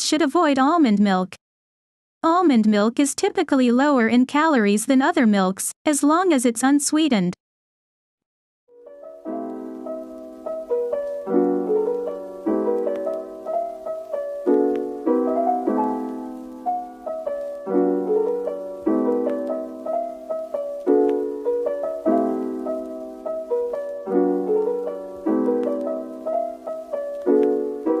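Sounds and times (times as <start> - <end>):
piano chords: 8.8 - 28.0.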